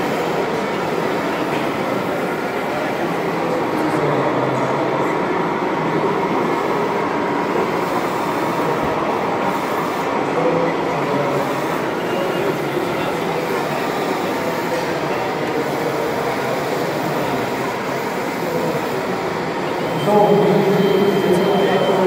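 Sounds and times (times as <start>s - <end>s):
dense background din: 18.2s - 22.0s.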